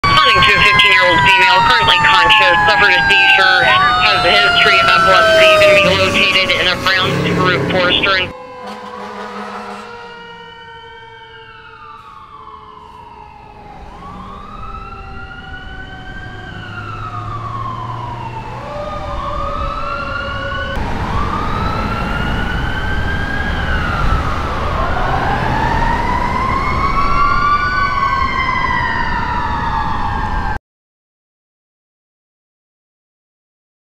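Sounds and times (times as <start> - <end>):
emergency vehicle sirens wailing: 0.0 - 30.6
low traffic rumble: 0.0 - 30.6.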